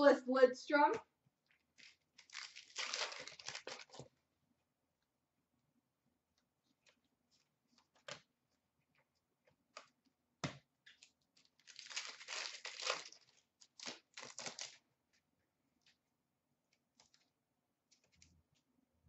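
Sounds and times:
trading cards rustling: 1.8 - 4.1
wrapper tearing and crinkling: 1.8 - 4.1, 11.4 - 14.8.

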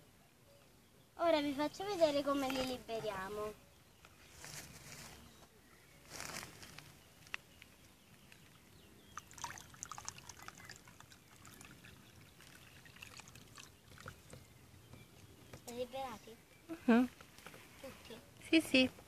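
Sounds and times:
water trickling onto ground: 7.2 - 15.3
small splashes: 9.1 - 14.4.

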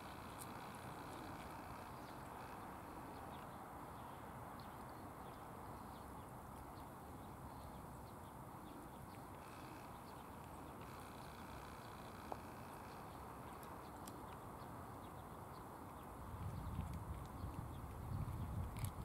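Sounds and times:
outdoor background hiss: 0.0 - 19.0
cat chewing food: 15.9 - 19.0.

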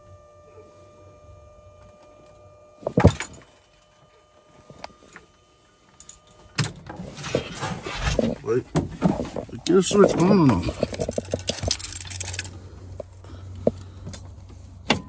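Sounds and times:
knocks and clicks of handling: 10.1 - 15.0.

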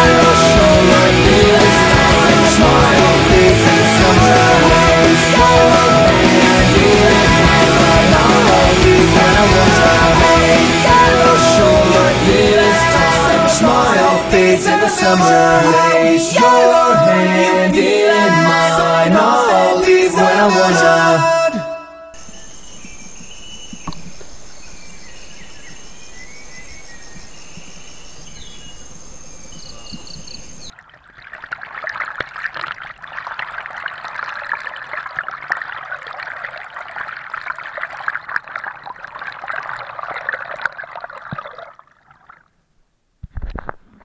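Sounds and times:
high-pitched insect drone: 22.2 - 30.7
insect chirps: 22.2 - 30.7
water rushing and splashing: 22.2 - 42.0.

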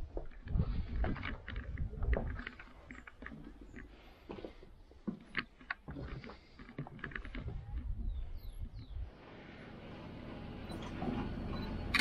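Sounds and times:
footsteps on debris: 0.0 - 8.0
light knocks and creaks: 0.1 - 8.8.

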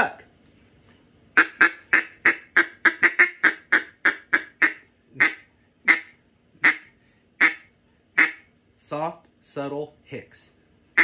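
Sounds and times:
duck call hicks: 1.4 - 8.5.

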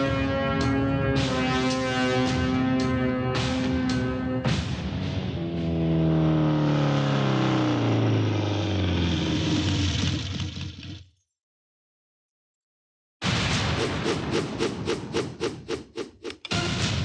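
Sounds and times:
motorcycle engine slowing down: 3.4 - 11.1.

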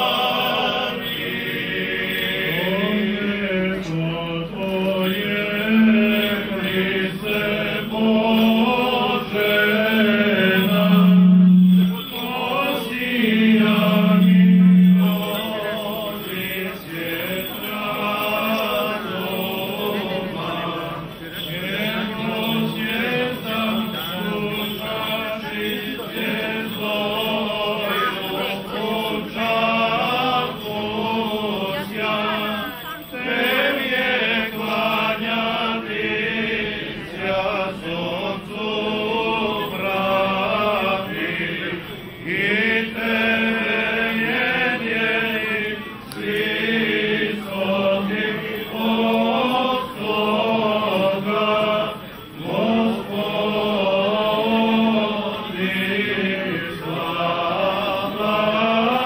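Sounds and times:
men chanting liturgically: 0.0 - 59.0.

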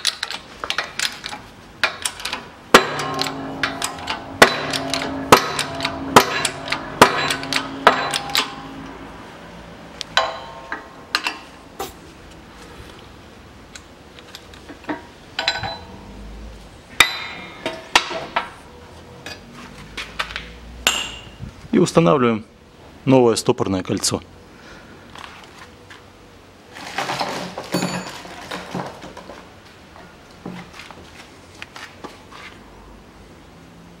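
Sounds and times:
shop press metallic clanks: 0.0 - 9.4, 10.1 - 11.6, 14.9 - 15.9, 17.0 - 18.5.

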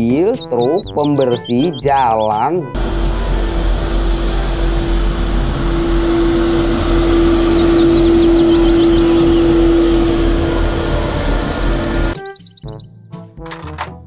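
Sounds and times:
street sweeper engine rumble: 2.7 - 12.2
steady humming tone: 2.8 - 12.2.

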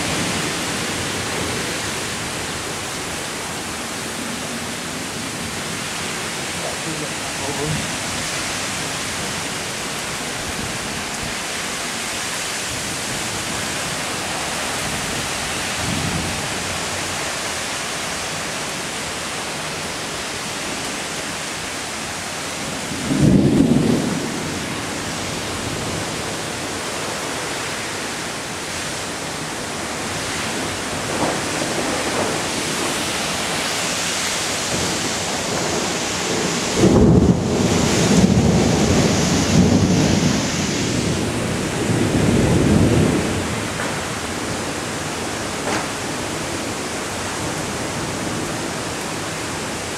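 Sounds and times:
heavy rain pouring: 0.0 - 49.9
thunder rumbles: 22.7 - 26.4, 29.8 - 46.8.

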